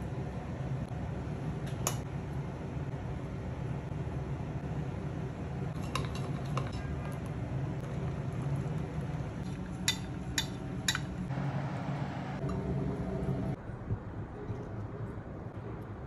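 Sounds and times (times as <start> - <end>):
low hum: 11.3 - 14.8.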